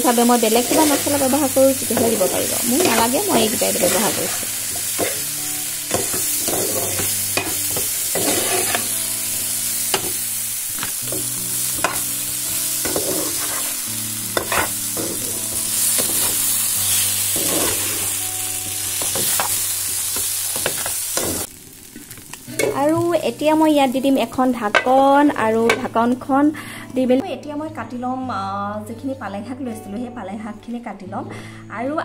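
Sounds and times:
potatoes sizzling in oil: 0.0 - 26.6
metal spatula scraping pan: 0.5 - 5.3, 5.9 - 9.0, 12.8 - 13.8, 14.4 - 15.3, 17.3 - 18.2.

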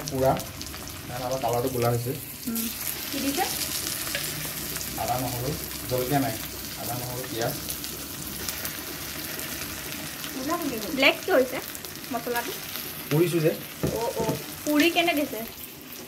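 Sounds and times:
onions sizzling in oil: 0.0 - 16.0
spatula scraping a wok: 3.8 - 4.6.

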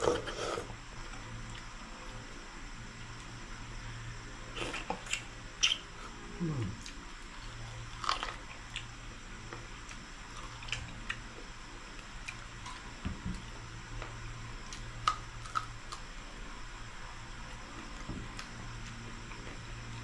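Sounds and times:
low steady hum: 0.0 - 20.0
crunchy chewing: 4.5 - 13.5, 14.6 - 16.2.

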